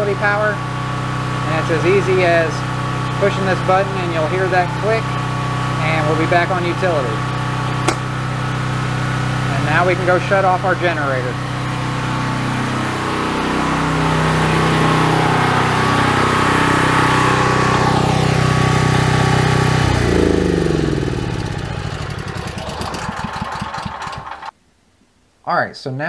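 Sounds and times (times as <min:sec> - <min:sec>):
generator engine running: 0:00.0 - 0:24.6.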